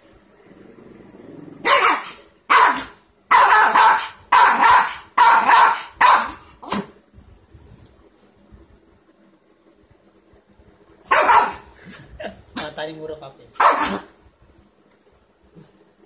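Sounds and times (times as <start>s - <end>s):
small dog growling: 0.6s - 1.7s
small dog barking: 1.6s - 7.0s, 11.1s - 11.7s, 13.6s - 14.1s.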